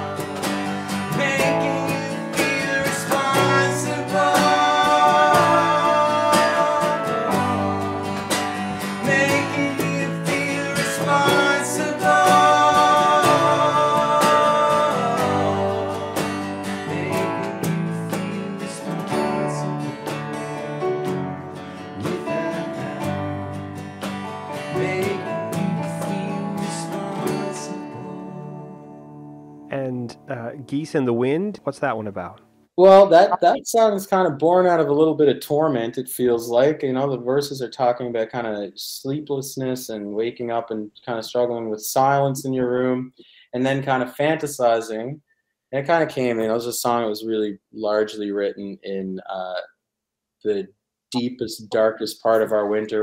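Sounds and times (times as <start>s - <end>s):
strummed acoustic guitar: 0.0s - 28.9s
keyboard: 0.0s - 33.9s
person singing lead vocal: 1.0s - 20.1s, 22.0s - 23.2s, 24.6s - 28.8s, 33.1s - 33.6s.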